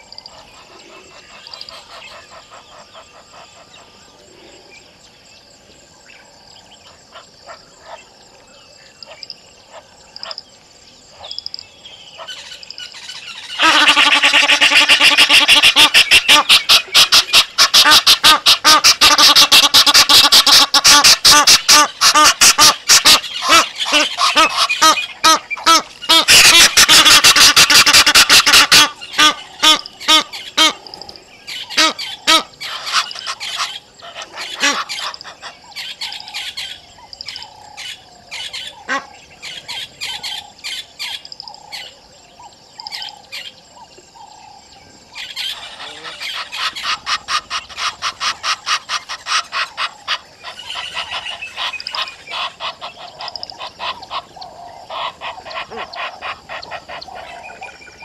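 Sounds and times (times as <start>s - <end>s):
geese honking: 13.5s - 30.9s, 31.7s - 35.6s, 45.5s - 57.7s.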